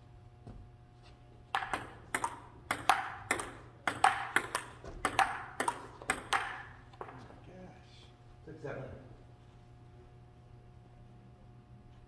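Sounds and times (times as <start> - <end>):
table tennis ball clicking: 1.5 - 7.1.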